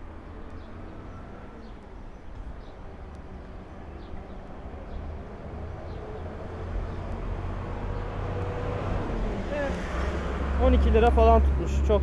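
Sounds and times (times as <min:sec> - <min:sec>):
passing vehicles rumbling: 0:00.0 - 0:12.0.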